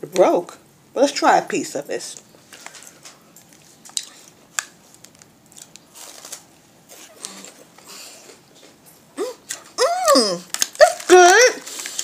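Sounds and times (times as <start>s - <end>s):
person chewing crunchy snack: 5.5s - 8.5s.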